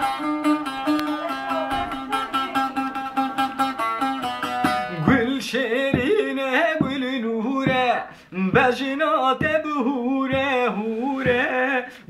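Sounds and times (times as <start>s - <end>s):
long-necked lute strummed rapidly: 0.0s - 10.6s
man singing a folk melody: 4.6s - 12.0s.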